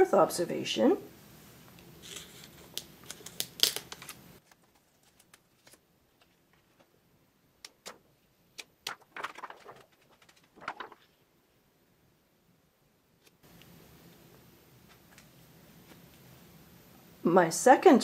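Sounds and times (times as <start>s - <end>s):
paper and plastic rustling: 2.0s - 7.0s, 7.7s - 11.2s.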